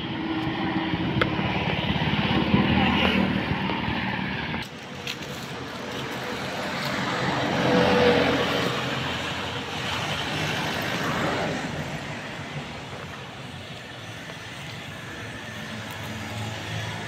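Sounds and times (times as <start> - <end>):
road vehicle passing by: 0.0 - 17.0.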